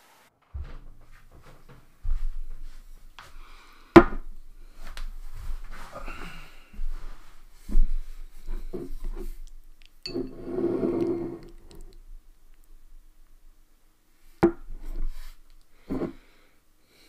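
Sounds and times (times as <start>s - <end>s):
glass bowl knocks: 10.1s - 10.5s
glass bowl scraping on table: 10.1s - 11.8s, 15.8s - 16.2s.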